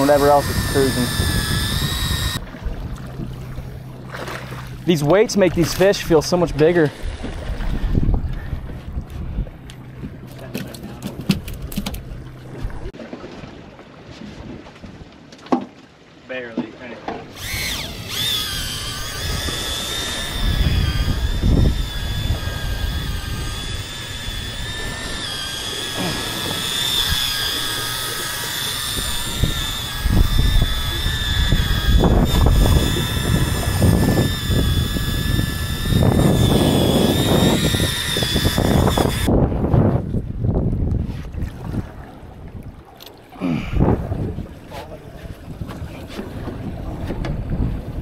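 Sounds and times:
wind buffeting microphone: 0.0s - 3.8s, 5.4s - 10.3s, 17.4s - 42.8s, 43.6s - 48.0s
outboard motor whining: 0.0s - 12.9s, 17.1s - 39.4s.

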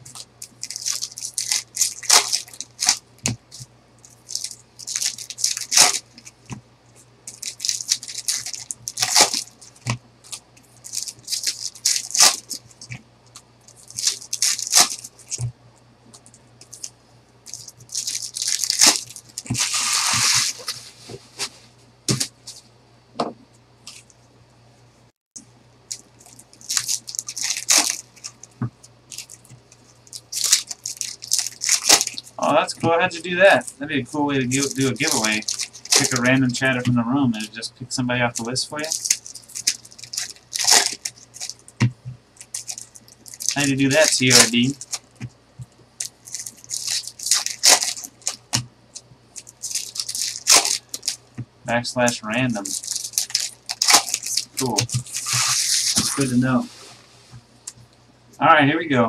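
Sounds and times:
foil wrappers crinkling and tearing: 0.0s - 6.4s, 7.3s - 13.0s, 13.7s - 15.4s, 17.5s - 21.5s, 25.9s - 37.6s, 38.3s - 45.2s, 46.0s - 51.2s, 52.0s - 56.8s
cards flicked and shuffled: 34.5s - 36.9s.

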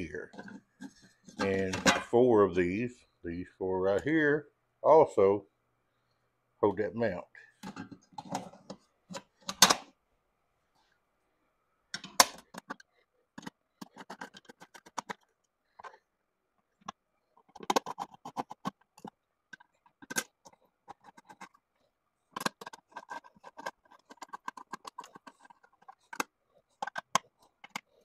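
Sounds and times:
small metal parts rattling: 22.3s - 28.0s.

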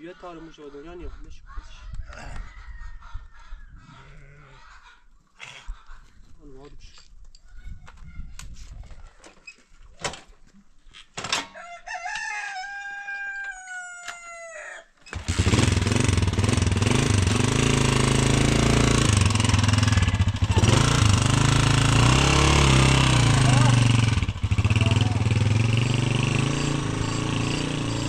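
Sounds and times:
rooster crowing: 11.5s - 15.0s
loud engine running: 15.2s - 28.0s.

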